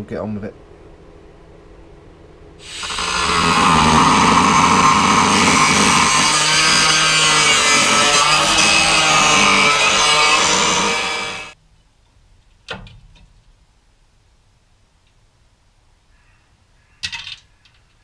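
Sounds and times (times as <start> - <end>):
angle grinder cutting steel: 2.6 - 11.6.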